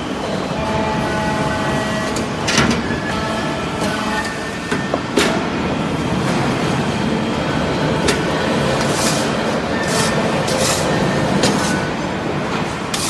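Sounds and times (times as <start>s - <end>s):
hydraulic press humming: 0.0s - 13.0s.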